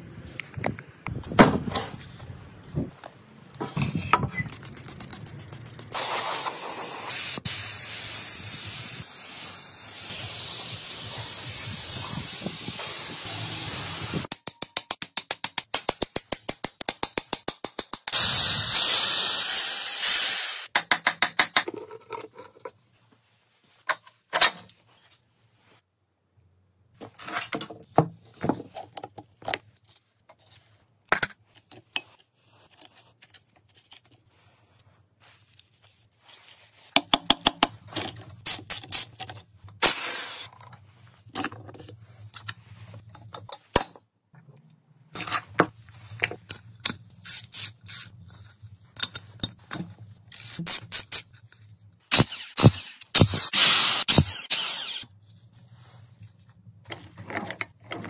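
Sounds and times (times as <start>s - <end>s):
ratchet wrench clicking: 46.8s - 48.1s, 50.3s - 51.2s.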